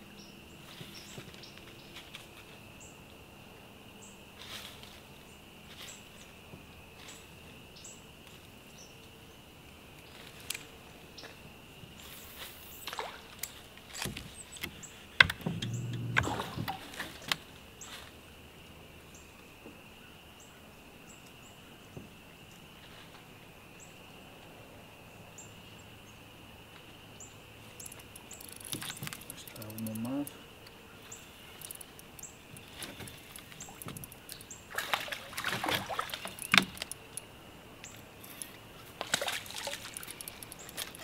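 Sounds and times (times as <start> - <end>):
insects buzzing: 0.0 - 41.0
sharp clicks and knocks: 14.0 - 17.4, 27.8 - 30.4, 31.6 - 34.4, 36.2 - 37.2
low thud: 15.2 - 16.9.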